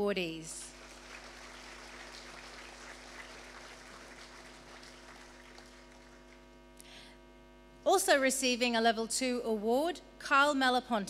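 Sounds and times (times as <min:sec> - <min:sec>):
electrical hum: 0:00.0 - 0:11.0
audience applauding: 0:00.7 - 0:06.4.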